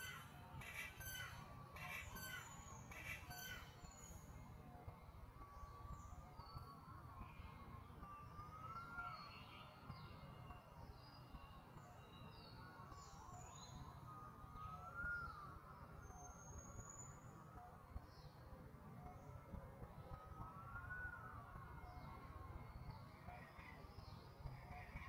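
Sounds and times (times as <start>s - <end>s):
bird chirps: 0.0s - 4.2s.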